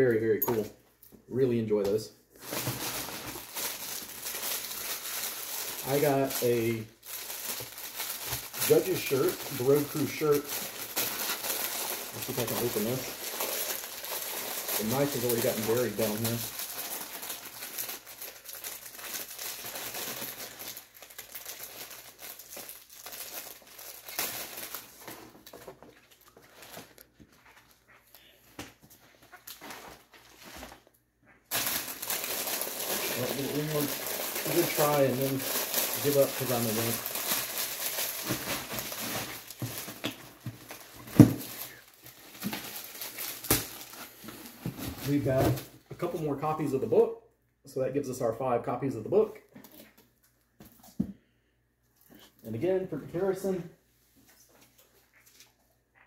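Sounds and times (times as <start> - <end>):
plastic bag crinkling: 2.4 - 27.8, 31.5 - 45.4.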